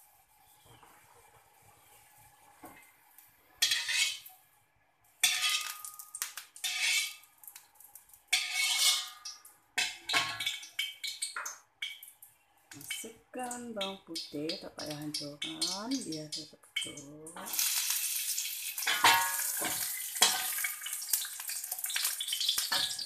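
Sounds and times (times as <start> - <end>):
metal spatula scraping wok: 3.6 - 4.3, 5.2 - 5.8, 6.6 - 7.2, 8.3 - 9.2.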